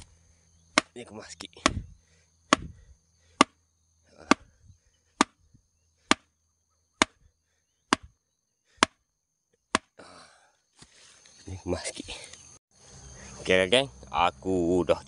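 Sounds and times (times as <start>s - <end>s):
stake driven into soil: 2.5s - 2.8s.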